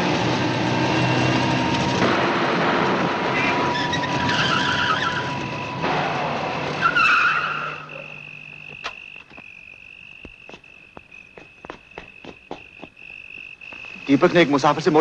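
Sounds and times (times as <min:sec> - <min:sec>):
car tyres screeching: 0:03.0 - 0:14.6
crickets chirring: 0:06.6 - 0:15.0
sharp clicks: 0:08.6 - 0:09.6.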